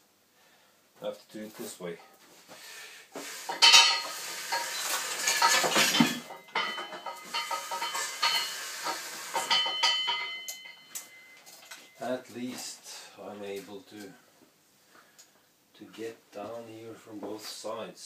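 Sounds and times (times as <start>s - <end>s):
steel clanking and rattling: 3.5s - 12.0s
ringing metal notes: 3.6s - 12.2s
metal knocks: 5.3s - 11.4s.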